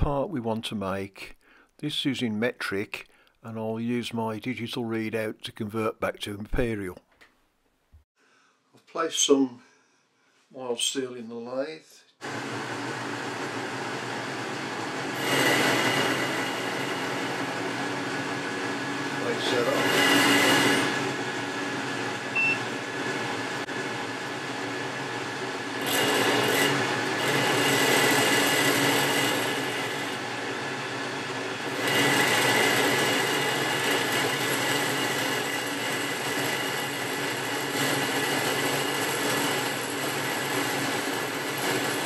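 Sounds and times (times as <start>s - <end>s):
lathe cutting steel: 12.2s - 42.0s
lathe whine: 12.2s - 42.0s.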